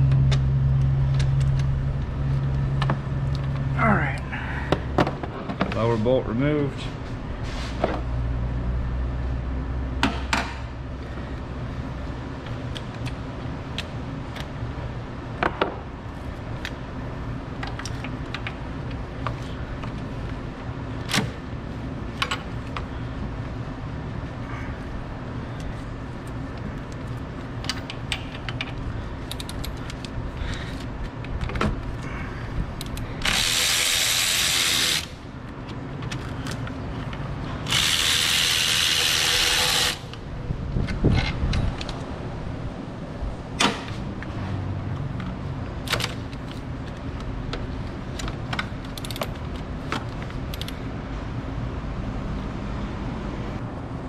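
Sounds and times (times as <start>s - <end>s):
steady low hum: 0.0s - 54.0s
cordless electric ratchet: 32.8s - 35.2s, 37.6s - 40.2s.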